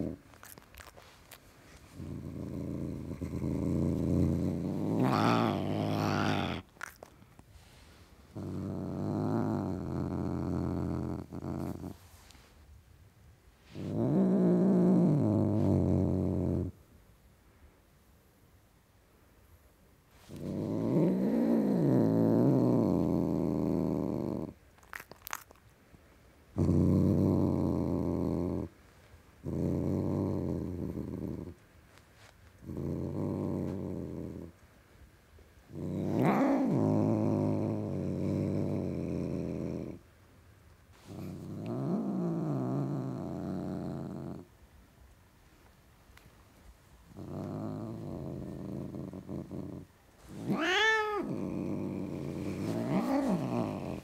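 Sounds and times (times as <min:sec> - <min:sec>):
cat growling: 0:00.0 - 0:01.2, 0:01.9 - 0:07.2, 0:08.3 - 0:12.0, 0:13.7 - 0:16.8, 0:20.2 - 0:25.6, 0:26.6 - 0:28.8, 0:29.4 - 0:31.6, 0:32.6 - 0:34.6, 0:35.7 - 0:40.0, 0:41.0 - 0:44.5, 0:47.1 - 0:54.0.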